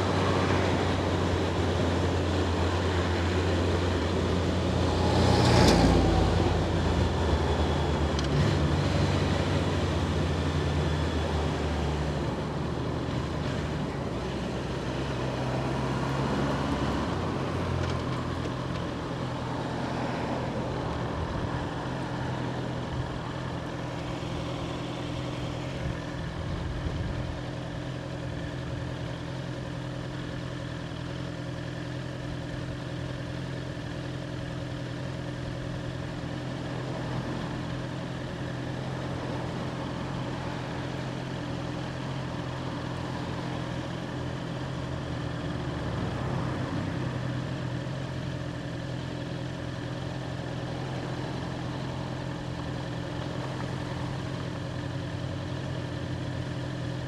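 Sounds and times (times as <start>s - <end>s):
motorcycle engine idling: 0.0s - 4.9s, 18.0s - 19.7s, 20.5s - 57.0s.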